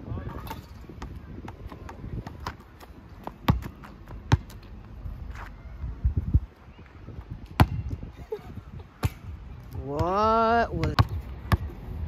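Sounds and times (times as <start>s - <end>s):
basketball bouncing on hard court: 1.0s - 4.5s, 10.8s - 11.7s.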